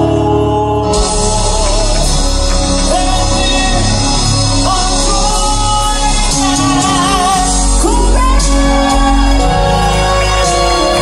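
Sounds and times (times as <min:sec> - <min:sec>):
grand piano: 0:00.0 - 0:11.0
male vocal quartet singing: 0:00.0 - 0:11.0.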